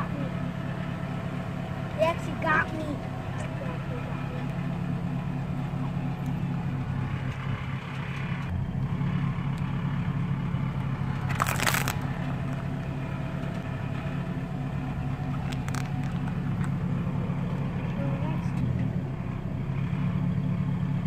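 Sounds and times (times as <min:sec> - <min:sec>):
vehicle engine idling: 0:00.0 - 0:21.0
plastic tubes crunching: 0:11.2 - 0:12.3, 0:15.3 - 0:16.7.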